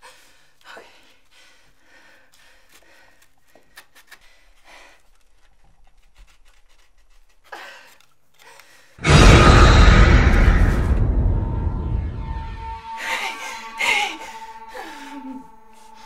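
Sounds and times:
stick scraping on rope: 5.0s - 8.2s
scary music sting with low hit: 9.0s - 16.0s.

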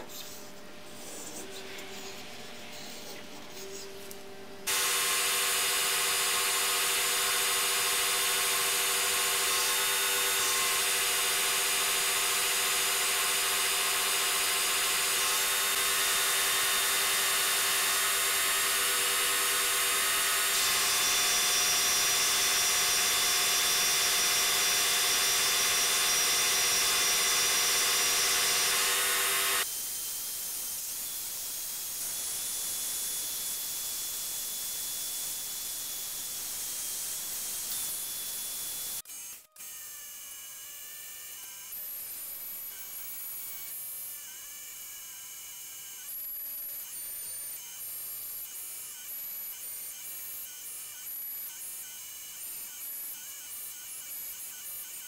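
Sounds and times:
milling machine whining: 4.7s - 29.7s.

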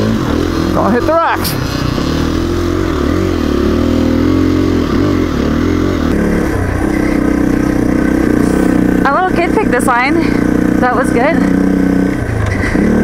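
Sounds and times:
dirt bike engine revving: 0.0s - 13.0s
dirt bike engine running steadily: 0.0s - 13.0s.

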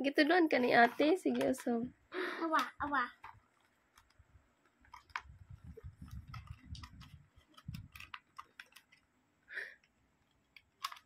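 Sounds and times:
plastic toy parts clicking: 6.1s - 9.0s, 9.8s - 11.0s.

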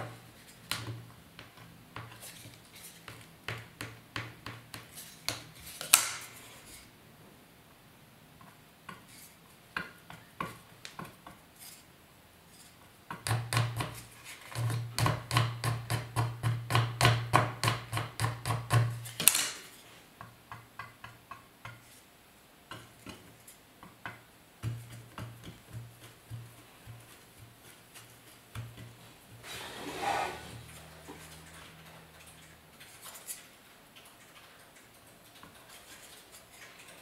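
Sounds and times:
brush scraped with wooden spatula: 26.0s - 31.8s.

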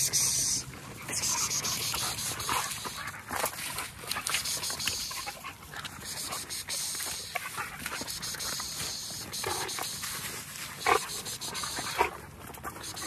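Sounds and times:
rustling and scraping: 0.0s - 6.1s, 7.2s - 11.3s
dogs scuffling over dry leaves: 0.0s - 13.0s.

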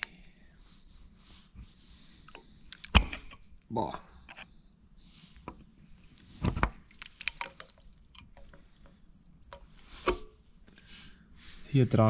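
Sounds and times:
water dripping and splattering: 6.9s - 10.6s.

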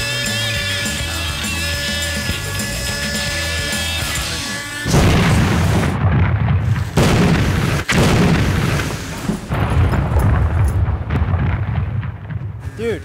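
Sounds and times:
pyrotechnic crackling: 0.0s - 13.0s
loud explosion blasts: 4.9s - 13.0s.

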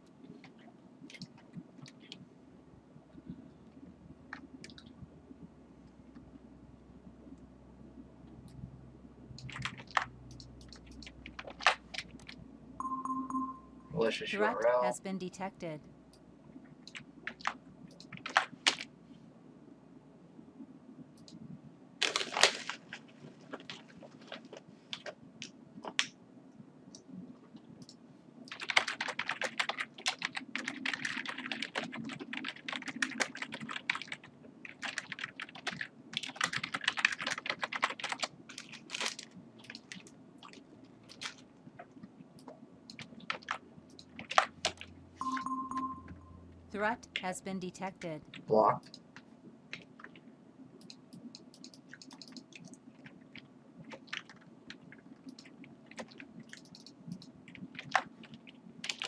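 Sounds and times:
typing on a computer keyboard: 27.8s - 41.4s, 50.8s - 52.8s, 55.2s - 59.0s.

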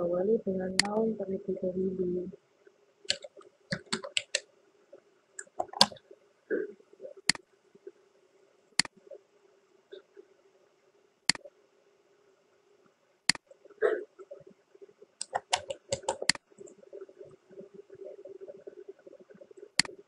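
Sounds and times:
faint steady hum: 0.0s - 20.0s
computer keyboard typing: 3.1s - 4.4s, 5.4s - 6.0s, 15.2s - 16.8s
mouse clicks: 3.1s - 4.4s, 15.2s - 16.4s.

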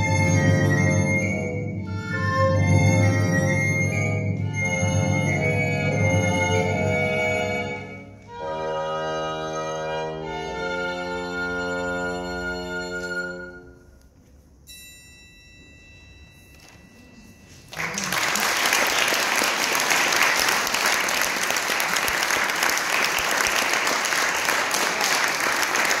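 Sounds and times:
violin bassoon and recorder chord: 0.0s - 13.7s
faint high ringing tone: 14.6s - 17.7s
audience applauding: 17.7s - 26.0s.

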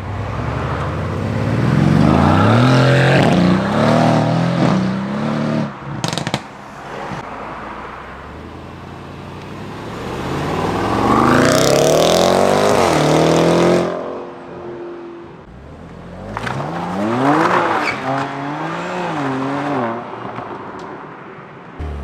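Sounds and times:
car engines accelerating: 0.0s - 14.5s, 21.8s - 22.0s.

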